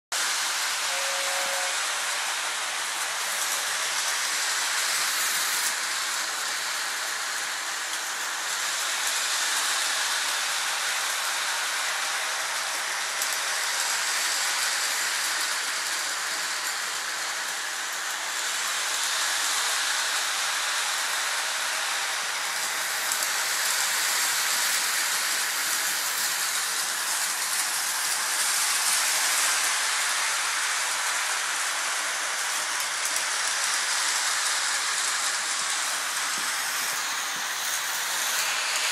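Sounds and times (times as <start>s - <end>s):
toy train running on track: 0.2s - 38.9s
two-tone train toot: 0.6s - 2.6s.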